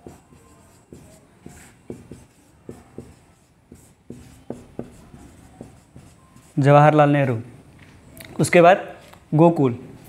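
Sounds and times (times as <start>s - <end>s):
marker squeaking on whiteboard: 0.0s - 7.1s
marker taps on whiteboard: 1.9s - 5.0s.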